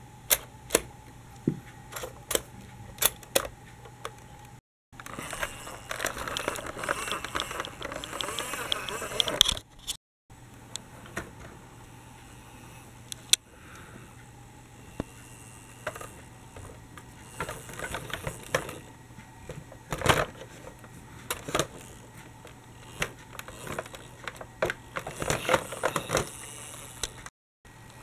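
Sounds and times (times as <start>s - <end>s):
toy wheels clicking on plastic tracks: 5.0s - 9.6s, 15.0s - 18.9s, 21.3s - 27.3s.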